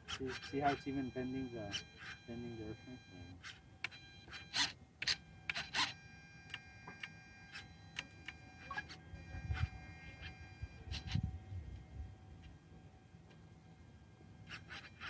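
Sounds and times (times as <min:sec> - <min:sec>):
servos whirring: 0:00.0 - 0:11.3, 0:14.4 - 0:15.0
faint high whine: 0:00.1 - 0:15.0.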